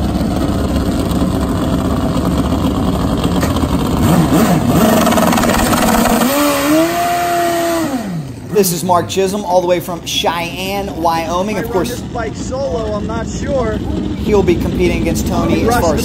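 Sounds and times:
motorbike engine revving: 2.8 - 9.0.

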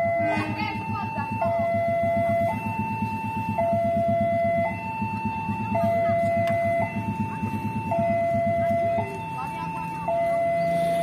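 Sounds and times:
steady low rumble: 0.0 - 11.0
two-tone crossing alarm: 0.0 - 11.0.

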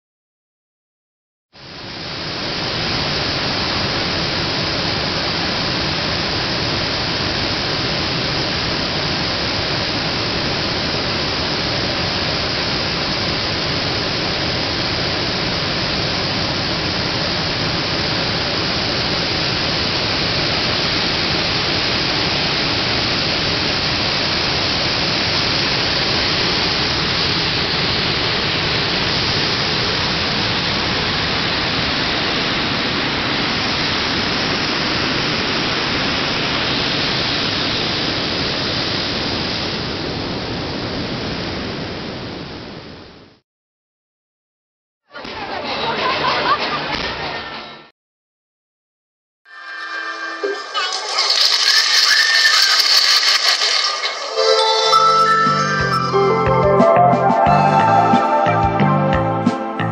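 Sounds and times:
steady rushing noise: 1.6 - 43.0.

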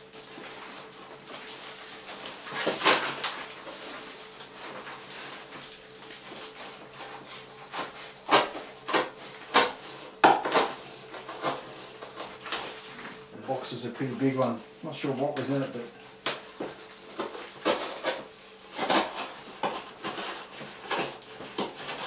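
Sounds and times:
cardboard rasps and crackles: 0.2 - 13.2, 16.2 - 22.0
cardboard ripping: 0.3 - 12.8, 17.1 - 22.0.

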